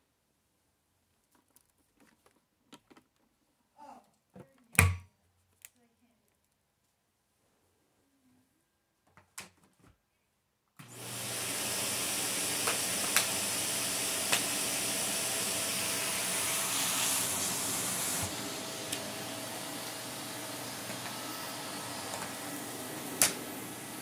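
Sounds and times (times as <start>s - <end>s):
vacuum cleaner running: 10.8s - 24.0s.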